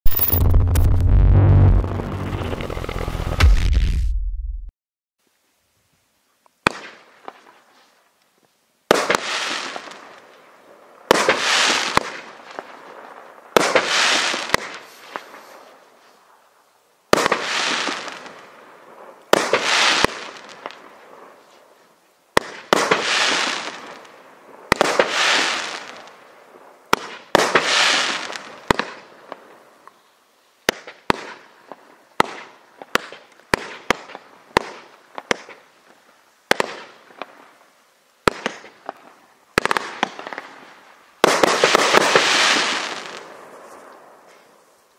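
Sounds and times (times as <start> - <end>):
sharp firework cracks: 0.0 - 3.9, 6.6 - 7.5, 8.9 - 10.0, 11.1 - 12.7, 13.5 - 15.6, 17.1 - 18.5, 19.3 - 20.9, 22.4 - 26.2, 26.9 - 29.4, 30.6 - 31.5, 32.2 - 35.7, 36.5 - 37.4, 38.2 - 44.1
fireworks shots with sharp reports: 0.0 - 4.7, 11.0 - 15.7, 22.4 - 29.4, 38.2 - 44.2.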